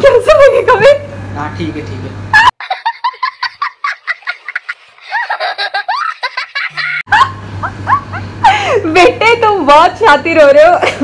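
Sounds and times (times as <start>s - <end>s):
young boy laughing: 2.4s - 8.9s.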